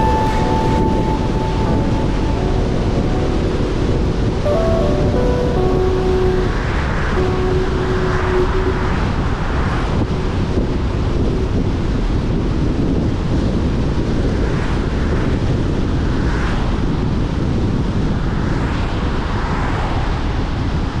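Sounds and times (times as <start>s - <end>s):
car road and wind noise: 5.1s - 21.0s.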